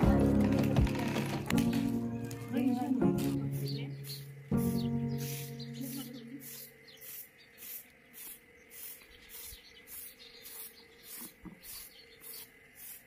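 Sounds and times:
broom sweeping concrete floor: 3.0s - 4.3s, 5.2s - 13.0s.

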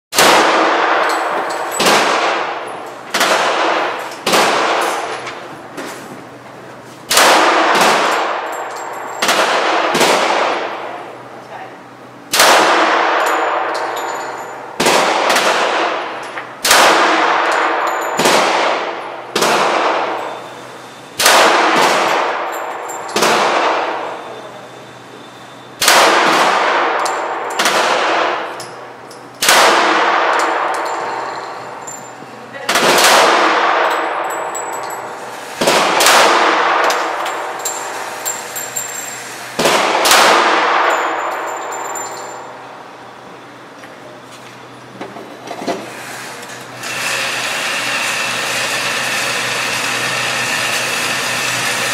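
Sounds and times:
pistol shots echoing: 0.2s - 5.1s, 7.1s - 10.9s, 12.3s - 20.4s, 21.2s - 24.3s, 25.8s - 31.8s, 32.7s - 38.6s, 39.6s - 42.5s.

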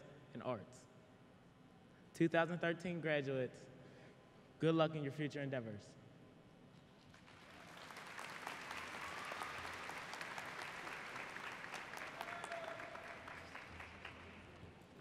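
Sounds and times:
audience applause: 7.2s - 14.6s.

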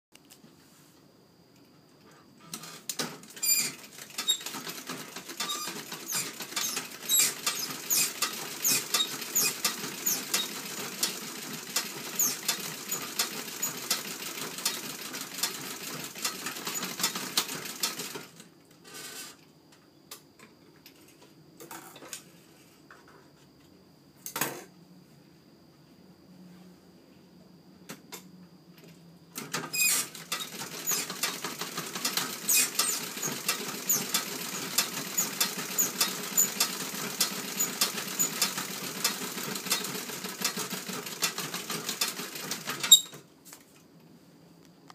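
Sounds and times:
treadle sewing machine ticking: 3.7s - 18.3s, 30.1s - 43.1s.

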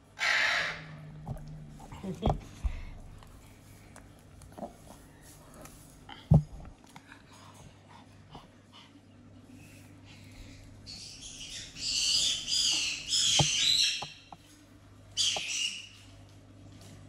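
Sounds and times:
parrots squawking: 0.1s - 1.1s, 10.4s - 14.2s, 15.2s - 16.0s.

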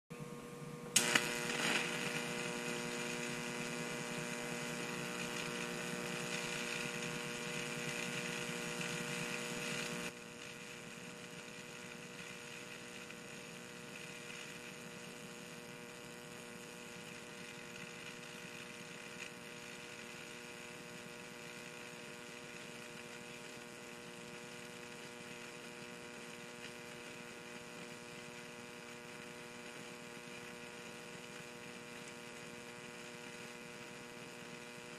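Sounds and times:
electric arc buzzing: 0.2s - 34.9s
sharp electric crack: 1.0s - 12.8s.

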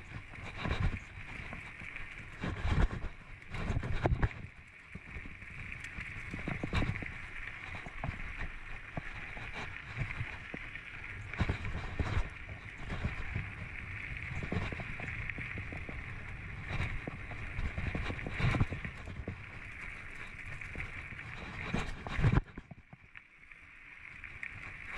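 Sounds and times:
bike tyres rolling over dirt: 0.0s - 24.9s.

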